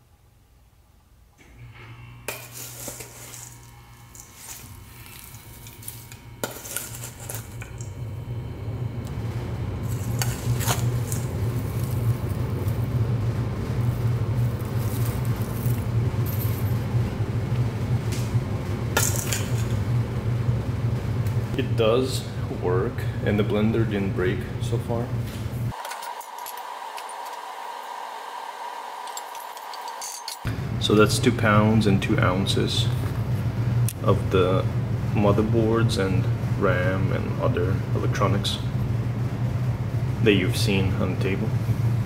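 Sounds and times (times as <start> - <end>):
blender motor humming: 1.7 - 16.3, 25.7 - 30.6.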